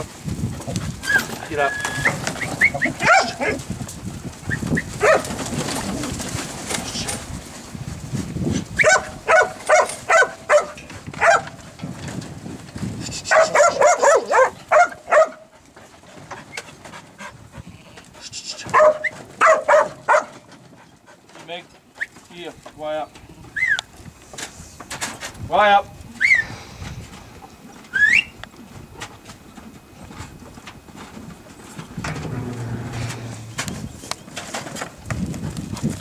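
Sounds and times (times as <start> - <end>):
dog barking sharply: 3.0 - 3.4, 5.0 - 5.3, 8.8 - 11.5, 13.3 - 15.4, 18.6 - 20.4.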